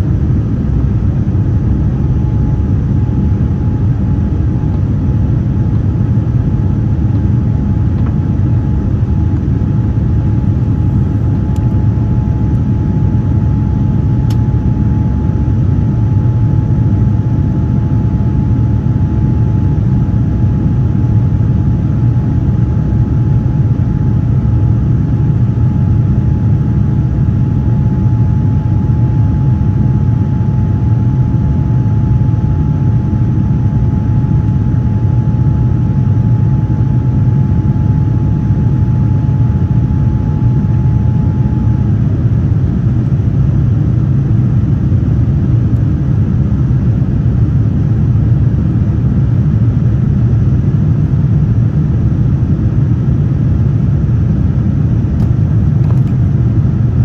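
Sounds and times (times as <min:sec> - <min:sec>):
airplane cabin engine rumble: 0:00.0 - 0:57.0.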